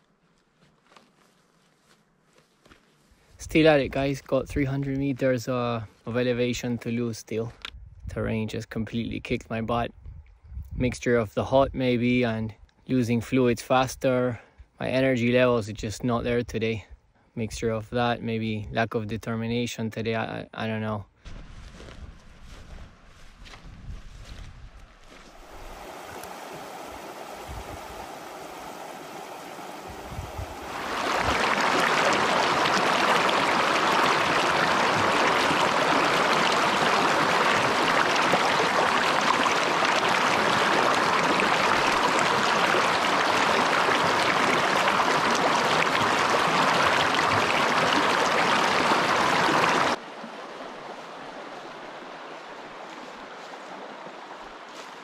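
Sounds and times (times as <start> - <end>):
rushing mountain stream: 25.0 - 55.0.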